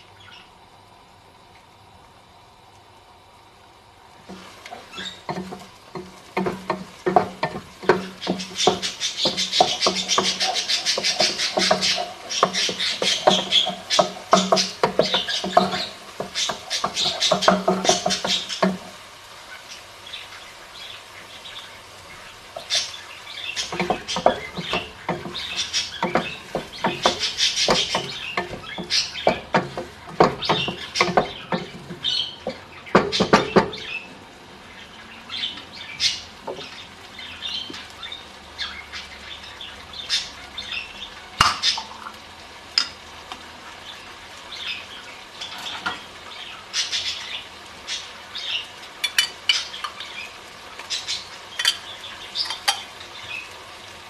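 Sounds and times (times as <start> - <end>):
utensils clattering in a pot: 4.3 - 19.0, 22.6 - 34.0, 45.4 - 46.1, 49.0 - 50.1, 51.5 - 53.0.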